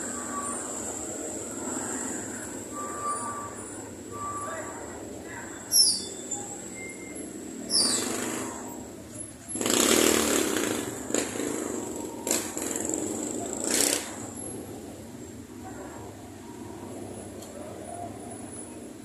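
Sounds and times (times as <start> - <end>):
vehicles passing close by: 0.0 - 19.0.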